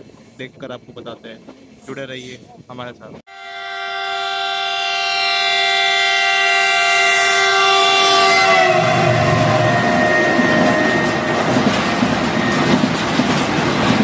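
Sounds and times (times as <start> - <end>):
locomotive horn blast: 3.3 - 12.8
locomotive rumbling past: 4.6 - 14.0.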